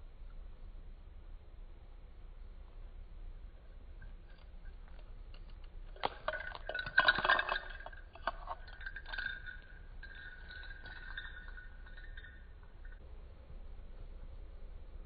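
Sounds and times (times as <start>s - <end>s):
small toy clicking and clinking: 4.2s - 13.0s.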